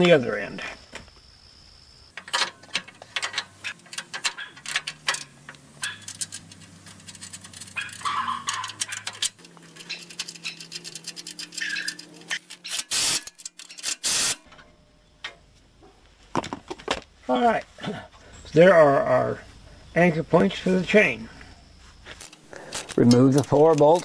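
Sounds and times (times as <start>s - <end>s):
metal clinks and clanks: 2.2s - 14.6s, 22.2s - 24.0s.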